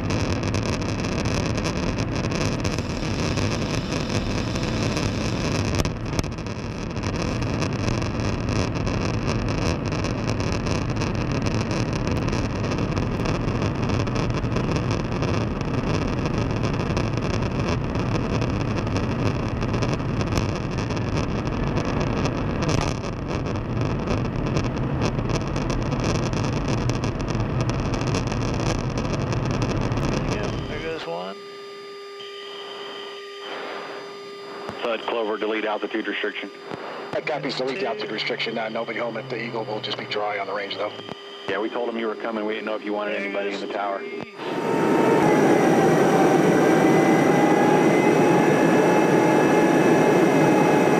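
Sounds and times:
airflow rush and jet engine drone: 0:00.8 - 0:16.0, 0:32.7 - 0:50.9.

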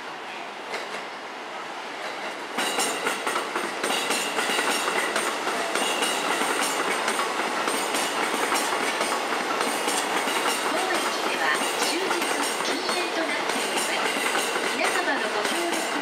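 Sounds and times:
high train whine: 0:00.0 - 0:16.0
train wheels clacking over rail joints: 0:02.1 - 0:16.0.

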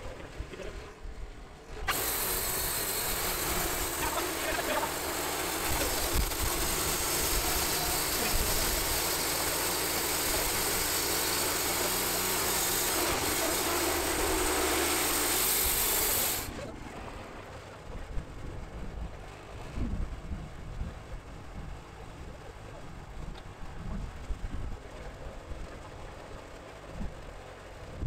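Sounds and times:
sawmill engine under load: 0:01.8 - 0:18.6
band blade cutting wood: 0:01.9 - 0:16.5.

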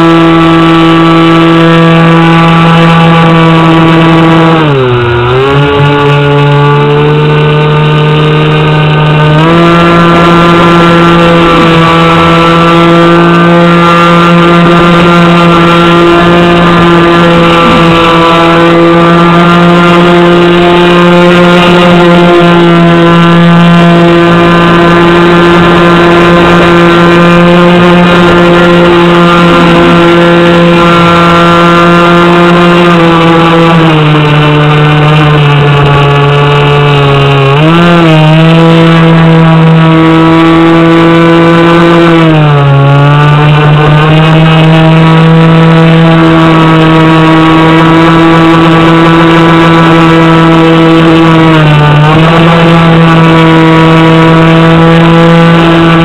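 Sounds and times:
airboat motor and propeller whine: 0:00.0 - 0:56.0.

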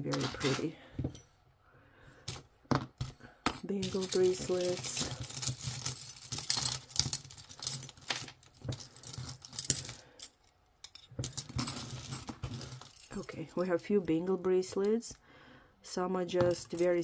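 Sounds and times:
metal jewelry clinking: 0:02.2 - 0:15.0, 0:16.4 - 0:17.0.

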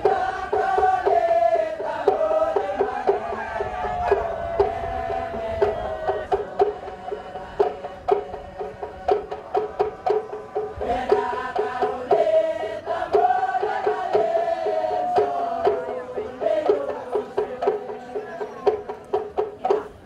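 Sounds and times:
steady drum beat: 0:00.0 - 0:20.0
voices singing a chant: 0:00.0 - 0:20.0.

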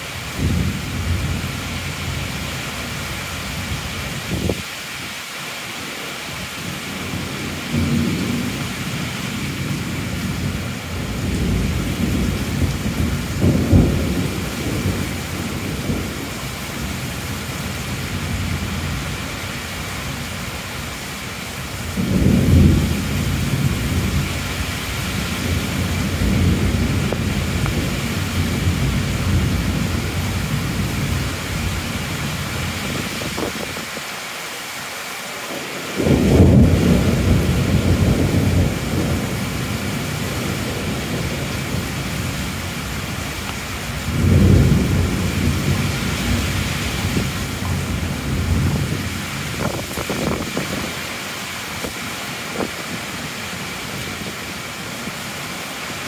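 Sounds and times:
heavy rain hissing: 0:00.0 - 0:56.0
thunder rolling: 0:09.5 - 0:17.0, 0:21.8 - 0:34.0, 0:36.0 - 0:43.2, 0:43.9 - 0:51.0.

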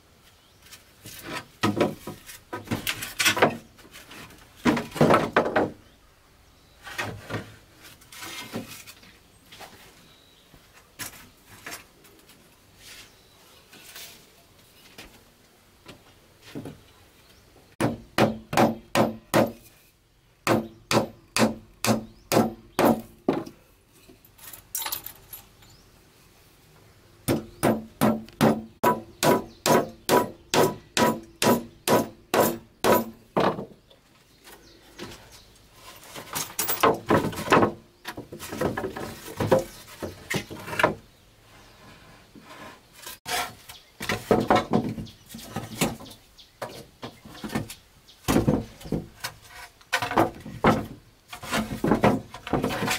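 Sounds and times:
wooden boards clattering: 0:01.3 - 0:04.0, 0:04.6 - 0:05.8, 0:32.4 - 0:33.8, 0:36.1 - 0:41.0, 0:43.3 - 0:52.9
hammer nailing wooden planks: 0:17.8 - 0:19.6, 0:20.4 - 0:23.5, 0:27.3 - 0:33.7.

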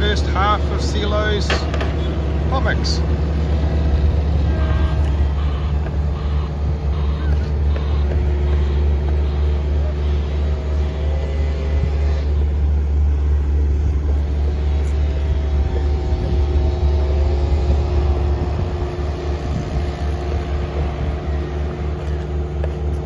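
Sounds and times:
machinery engine droning: 0:00.0 - 0:23.0.

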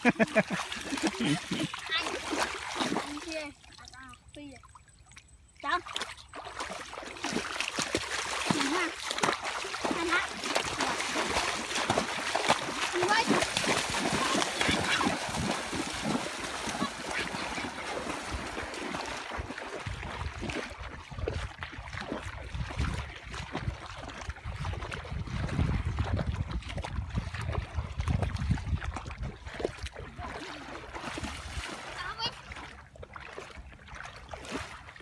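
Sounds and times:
children splashing in water: 0:00.0 - 0:35.0.

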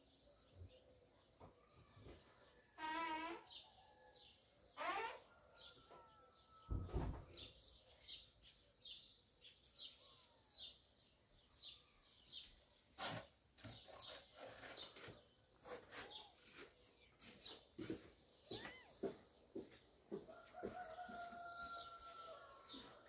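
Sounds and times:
small bird chirping: 0:07.4 - 0:20.0.

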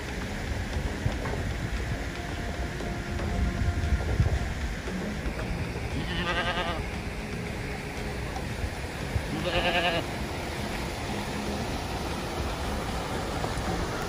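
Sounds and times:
steady rushing noise: 0:00.0 - 0:14.0
distant goats bleating: 0:05.9 - 0:07.0, 0:09.2 - 0:10.3.

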